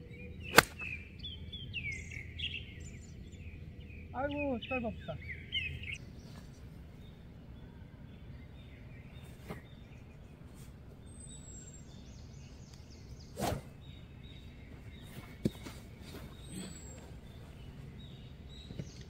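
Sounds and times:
quiet outdoor ambience: 0.0 - 19.0
golf club swishing: 0.5 - 0.9, 9.2 - 10.8, 13.2 - 13.8.

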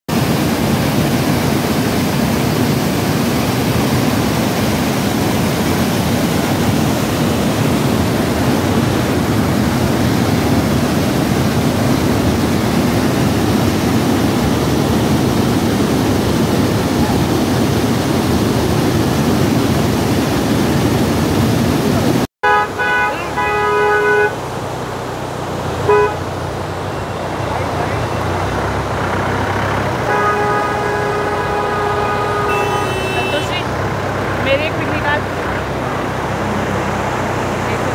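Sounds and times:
white-water rapids rushing: 0.1 - 37.9
horn honking: 22.4 - 25.0, 25.8 - 28.6, 29.4 - 34.0.

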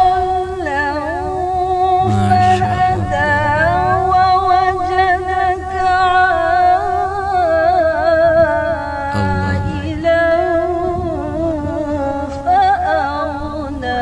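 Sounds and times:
women chanting recitation: 2.0 - 6.7.

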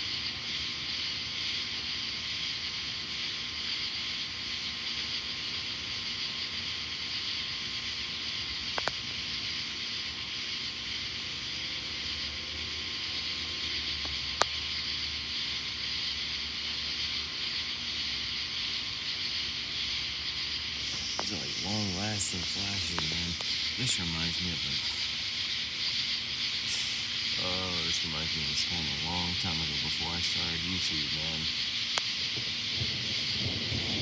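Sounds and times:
hissing rain ambience: 0.0 - 34.0
distant thunder: 32.3 - 34.0.

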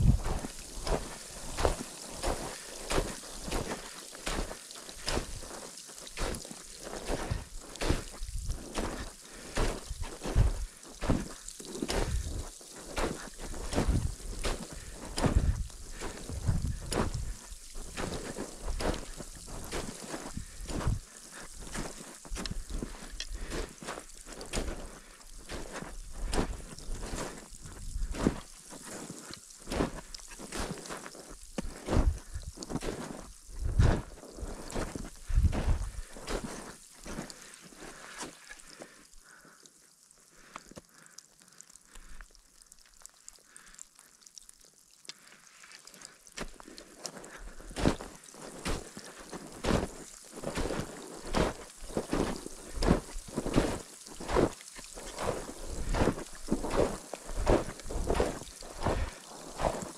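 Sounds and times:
wind buffeting microphone: 0.0 - 0.4, 15.2 - 15.7, 16.3 - 17.4, 33.5 - 34.0, 35.3 - 36.1
footsteps crunching on snow: 0.0 - 39.4, 45.7 - 59.9.

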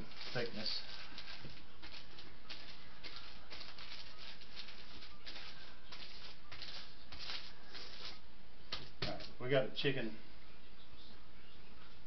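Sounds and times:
paper crinkling under rolling pin: 0.0 - 9.4.

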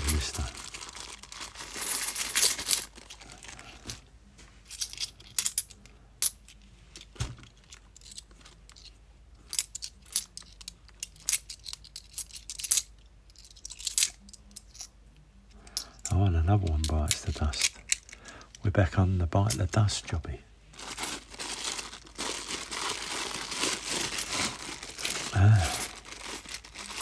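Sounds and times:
plastic bag crinkle: 0.0 - 4.0, 20.7 - 27.0.

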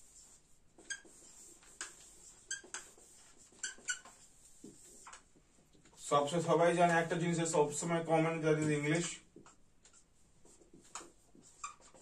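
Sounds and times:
scratchy marker strokes: 0.0 - 5.3, 9.8 - 12.0
marker squeaking on whiteboard: 0.0 - 6.1, 8.6 - 12.0.

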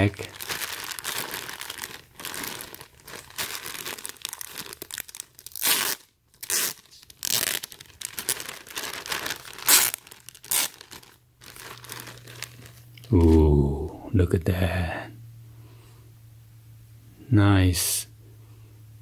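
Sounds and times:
plastic bag crinkling: 0.0 - 13.4
plastic bag ripping: 0.0 - 13.5.

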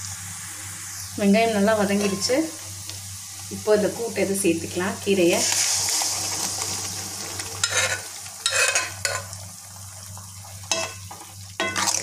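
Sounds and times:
food sizzling in hot oil: 0.0 - 12.0
ladle scraping a pan: 7.6 - 9.3.

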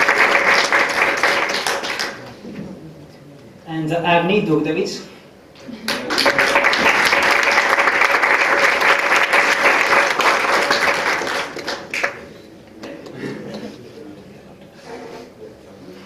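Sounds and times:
audience clapping: 0.0 - 2.4, 5.8 - 12.4.

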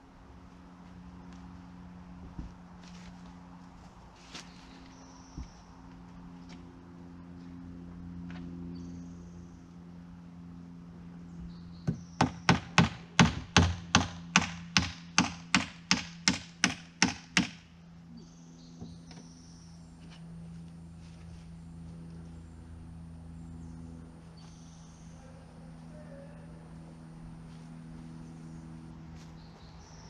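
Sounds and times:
hammer driving nail into wood: 11.9 - 17.6.

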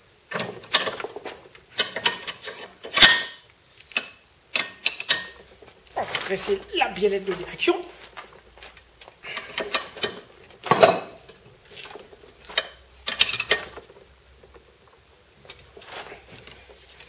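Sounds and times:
metallic clicks and knocks: 0.3 - 5.5, 9.4 - 14.7.

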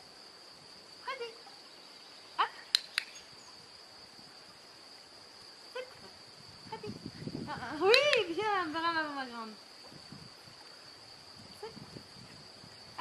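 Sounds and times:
sharp clicks: 2.7 - 3.2, 7.8 - 8.3.

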